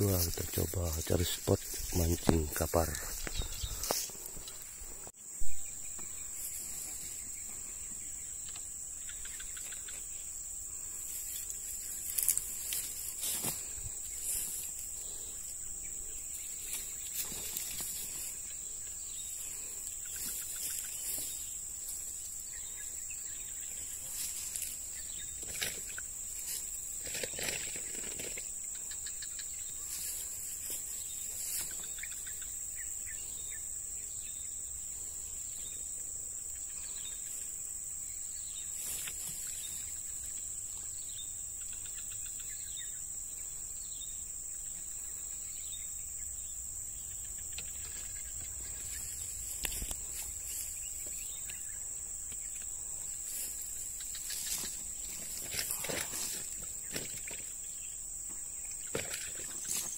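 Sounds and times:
rustles and knocks in grass: 0:00.0 - 0:04.8, 0:11.0 - 0:15.1, 0:16.3 - 0:18.5, 0:20.1 - 0:22.2, 0:23.7 - 0:28.5, 0:29.9 - 0:32.1, 0:38.7 - 0:39.9, 0:47.5 - 0:52.6, 0:53.2 - 0:57.5, 0:58.8 - 0:59.9
insects droning: 0:00.0 - 0:59.9.

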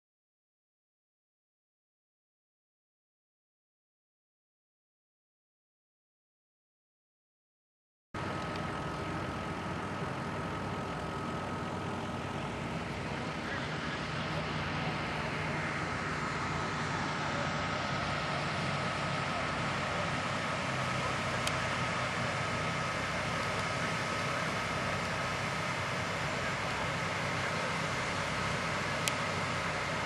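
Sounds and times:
thin steady whine: 0:08.2 - 0:30.0
vehicle road and engine noise: 0:08.2 - 0:30.0.

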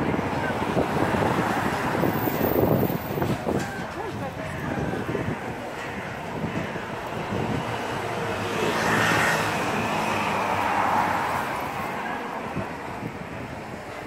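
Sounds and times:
vehicle passing: 0:06.0 - 0:13.4.

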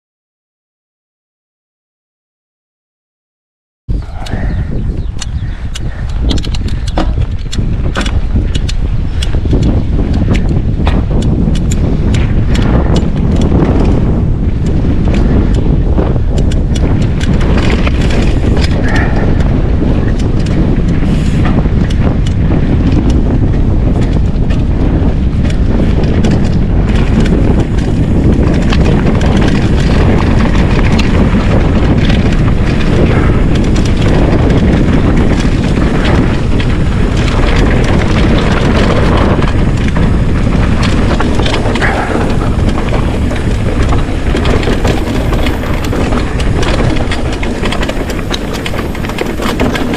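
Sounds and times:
wind on microphone: 0:03.9 - 0:49.9
bike knocking and rattling: 0:04.0 - 0:49.9
tyres crunching on gravel: 0:32.3 - 0:49.9.

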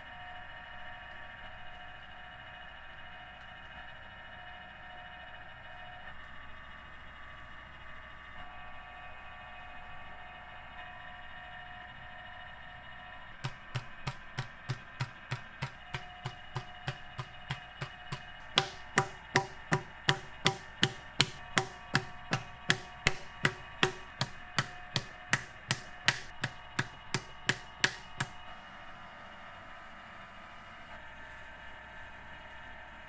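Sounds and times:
wooden paddle knocking clay: 0:13.4 - 0:28.4.

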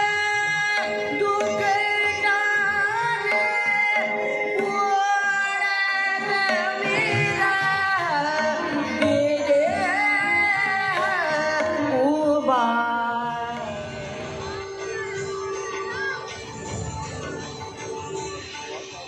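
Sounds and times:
woman singing into microphone: 0:00.0 - 0:14.9
drum accompaniment: 0:00.0 - 0:19.0.

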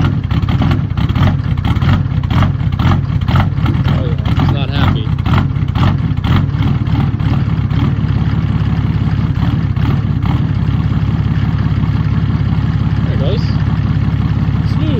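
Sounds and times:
diesel engine idling: 0:00.0 - 0:14.9.

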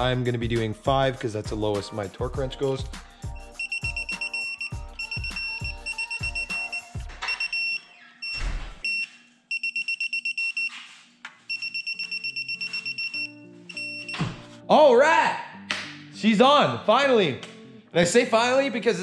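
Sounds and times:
torque wrench rapid high beeps: 0:03.4 - 0:10.7, 0:11.5 - 0:14.2.

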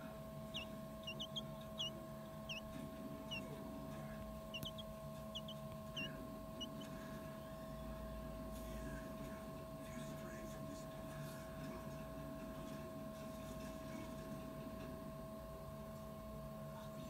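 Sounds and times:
quail chick peeping: 0:00.1 - 0:08.4.

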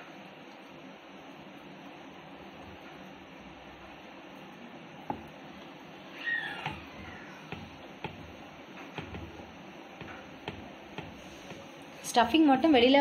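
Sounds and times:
rolling pin rolling dough: 0:01.4 - 0:12.2
wood knocking on wood: 0:05.0 - 0:05.3, 0:06.6 - 0:11.7.

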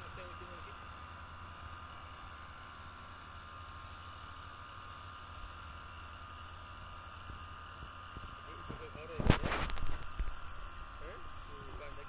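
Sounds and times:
distant sprayer engine humming: 0:00.0 - 0:12.0.

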